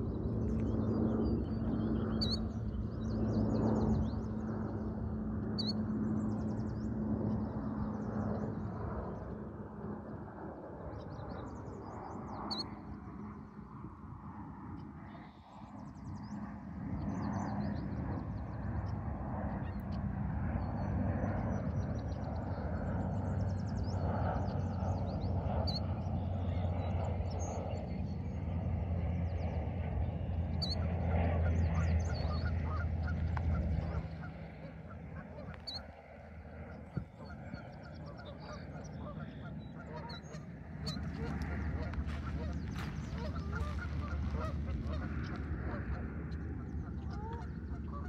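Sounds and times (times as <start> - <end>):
songbirds chirping: 21.6 - 48.0
waterfowl calling: 37.0 - 46.0.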